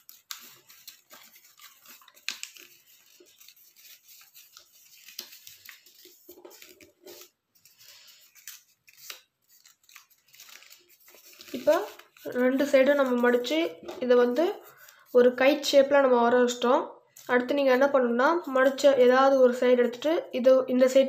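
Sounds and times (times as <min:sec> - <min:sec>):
paper crinkling: 0:00.0 - 0:15.4.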